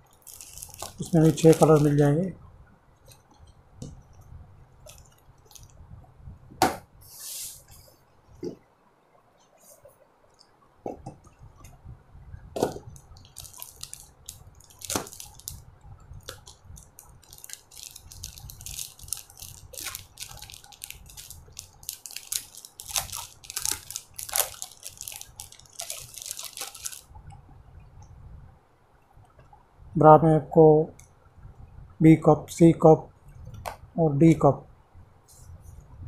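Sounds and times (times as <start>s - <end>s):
plastic crinkling and rustling: 0.0s - 2.2s, 4.8s - 5.8s, 12.6s - 27.1s.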